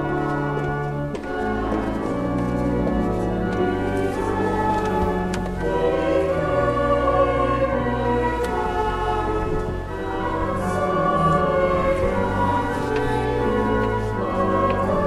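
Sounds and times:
choir singing held chords: 3.5 - 15.0.

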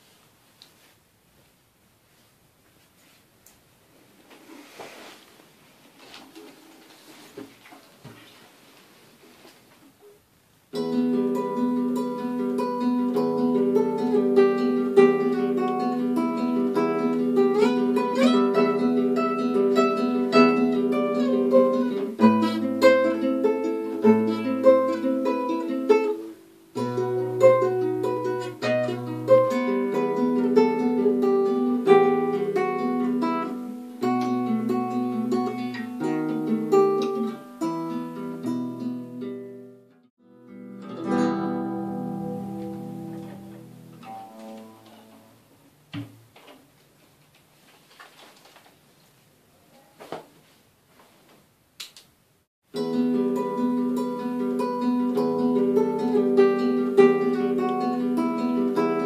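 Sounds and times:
acoustic guitar plucked: 10.7 - 46.4, 52.7 - 59.0.

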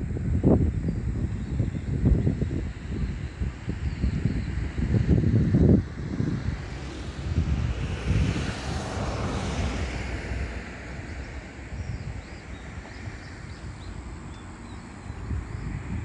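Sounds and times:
wind buffeting microphone: 0.0 - 16.0
distant vehicle passing: 5.8 - 11.8.

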